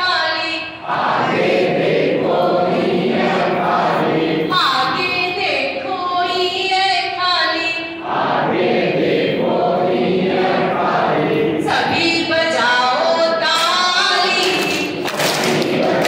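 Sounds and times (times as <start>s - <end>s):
group singing in chorus: 0.8s - 5.1s, 7.9s - 16.0s
woman's voice leading song: 4.5s - 8.0s.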